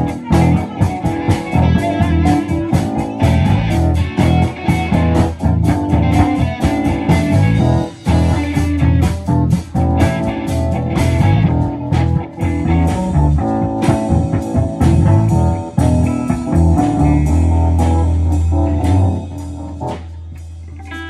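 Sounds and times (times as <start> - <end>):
blues-rock guitar: 0.0 - 21.0
heavy low bass line: 0.0 - 21.0.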